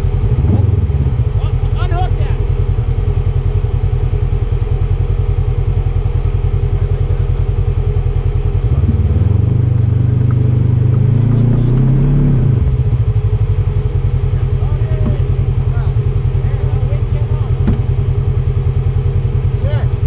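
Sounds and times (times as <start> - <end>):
utility vehicle engine idling and revving: 0.0 - 20.0.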